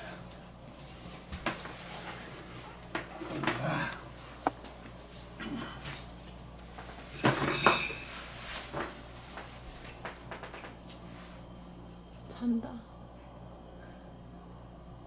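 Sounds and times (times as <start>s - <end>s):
dishes and cutlery clinking: 7.1s - 8.2s.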